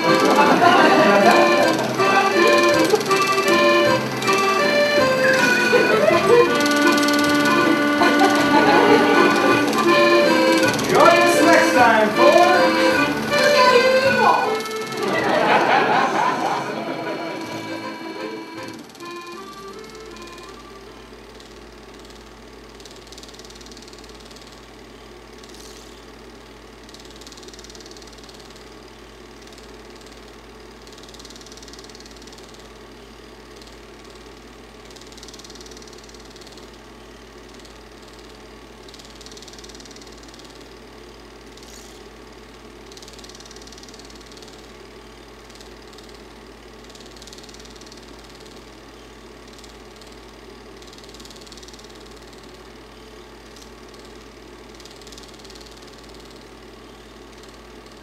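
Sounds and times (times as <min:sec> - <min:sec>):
projector hiss: 0:00.0 - 0:24.7
film projector whirring: 0:00.0 - 0:58.0.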